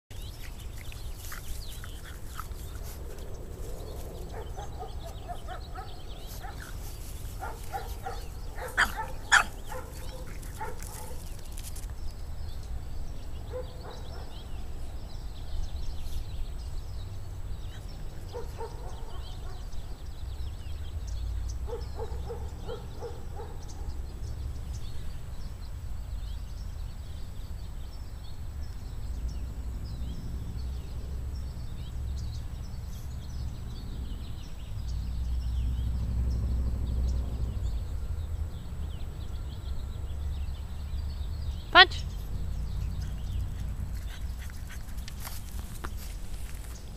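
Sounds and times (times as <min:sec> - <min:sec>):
low wind rumble: 0:00.1 - 0:46.9
dog barking: 0:04.3 - 0:06.7, 0:07.4 - 0:11.2, 0:13.5 - 0:14.3, 0:18.3 - 0:19.7, 0:21.6 - 0:23.9
dog yipping: 0:04.6 - 0:11.2.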